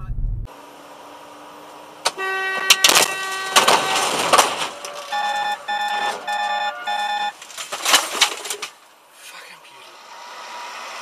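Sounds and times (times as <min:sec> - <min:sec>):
vehicle horn honking: 0:02.1 - 0:07.3
loud noisy bangs: 0:02.6 - 0:05.2.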